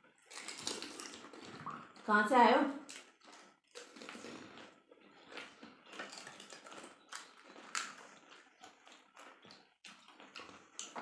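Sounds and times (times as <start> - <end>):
crisp shells crunched and chewed: 0.0 - 2.0, 2.8 - 11.0
puri shells cracking: 0.2 - 1.3.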